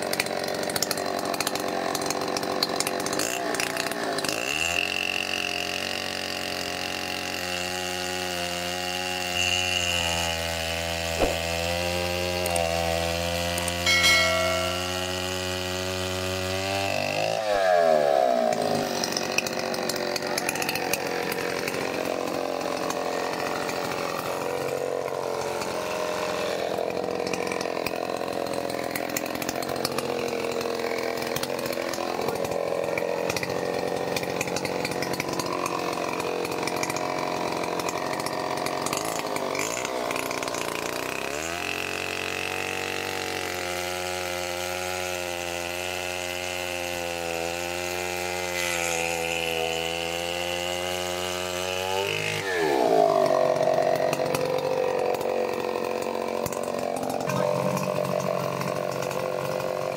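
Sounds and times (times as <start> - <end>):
chainsaw cutting through tree trunk: 0.0 - 59.9
chainsaw idling and revving: 0.0 - 59.9.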